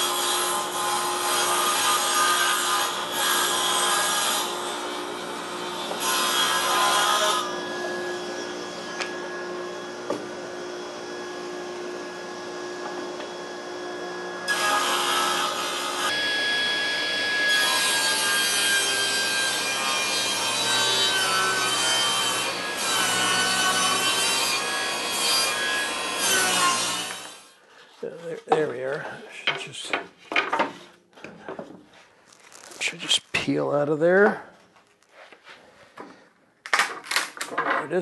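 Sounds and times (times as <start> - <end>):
saw cutting wooden board: 0.0 - 10.3, 14.5 - 27.4
table saw blade whine: 0.0 - 27.6.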